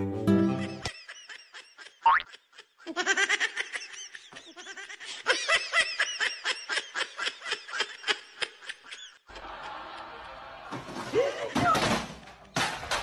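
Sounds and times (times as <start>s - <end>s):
high-pitched laughter: 0.6s - 9.4s.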